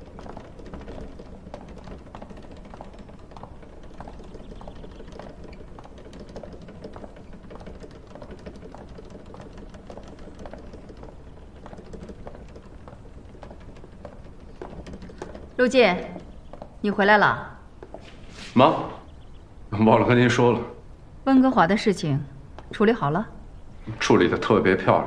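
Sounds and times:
footsteps of hard-soled shoes: 0.0s - 19.4s.

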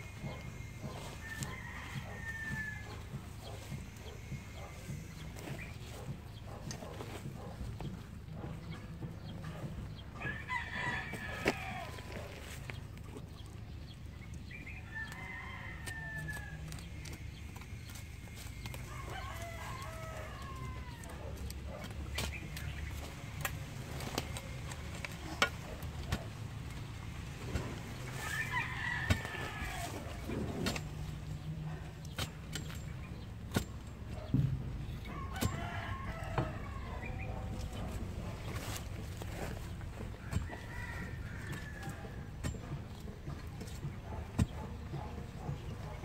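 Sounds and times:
chickens clucking: 0.0s - 46.0s
rooster crowing: 0.1s - 5.3s, 10.2s - 12.4s, 14.8s - 17.3s, 18.5s - 21.4s, 28.2s - 30.4s, 35.0s - 38.0s, 39.4s - 42.3s
hoe chopping into soil: 15.8s - 45.4s.

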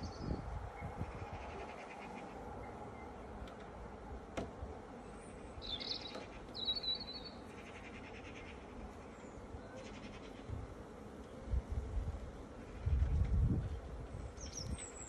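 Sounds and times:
honeybees humming: 0.0s - 13.1s
bird chirping: 5.6s - 8.6s.

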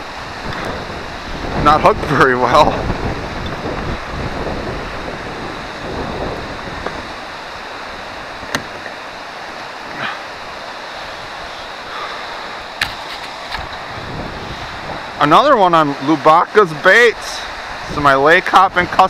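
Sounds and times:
wind across microphone: 0.0s - 9.0s, 9.8s - 15.4s
river water washing around boat: 0.0s - 19.0s.

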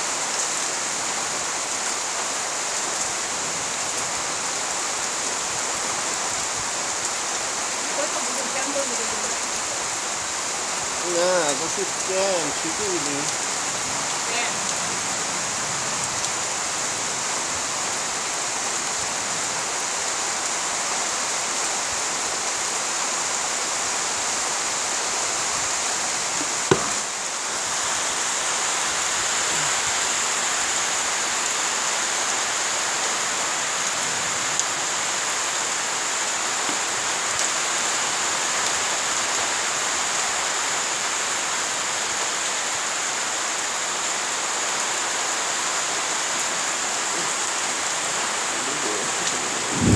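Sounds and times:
rain falling on leaves: 0.0s - 49.9s
sharp knock: 26.7s - 27.1s.

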